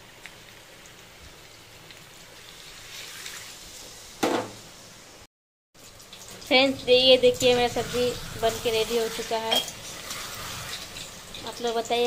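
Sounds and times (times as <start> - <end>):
food sizzling in a pan: 0.0 - 12.0
water hissing in hot pan: 0.0 - 12.0.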